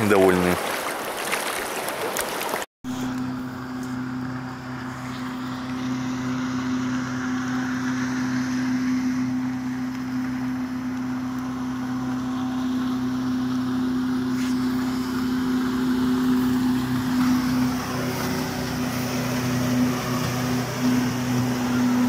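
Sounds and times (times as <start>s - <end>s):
rapids rushing: 0.0s - 2.6s
motorboat engine droning: 0.0s - 22.0s.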